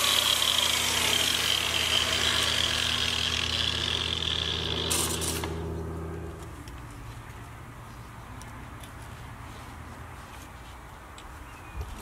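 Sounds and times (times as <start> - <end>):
motor winding down: 0.0 - 6.4
power sander grinding metal: 0.0 - 6.4.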